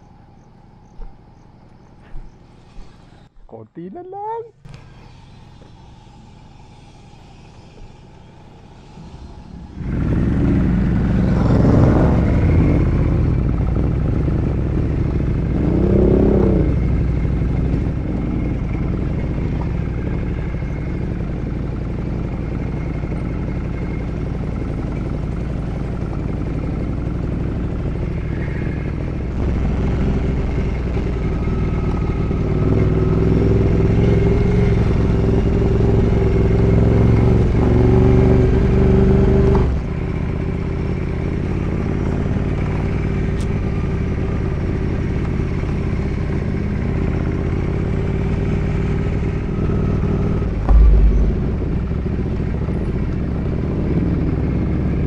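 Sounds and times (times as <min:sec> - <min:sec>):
motorcycle engine running: 0:04.7 - 0:55.0
low thump: 0:50.6 - 0:53.1.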